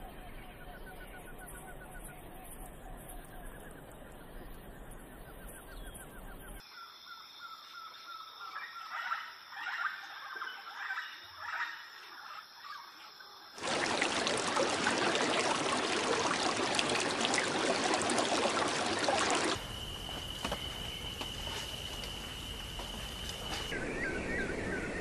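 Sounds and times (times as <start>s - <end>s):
trickling stream: 13.6s - 23.8s.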